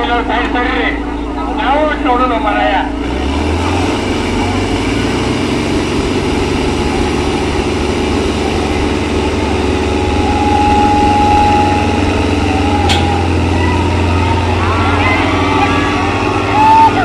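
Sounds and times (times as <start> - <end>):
tractor engines droning: 0.0 - 17.0.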